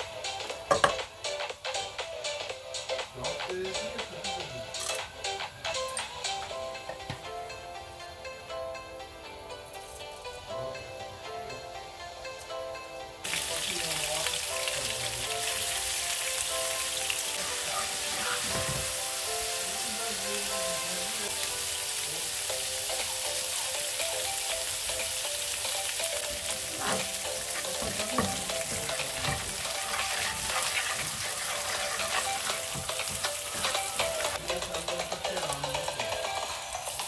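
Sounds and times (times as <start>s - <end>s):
oil sizzling in frying pan: 13.2s - 37.0s
spoon scraping pan: 26.8s - 34.2s.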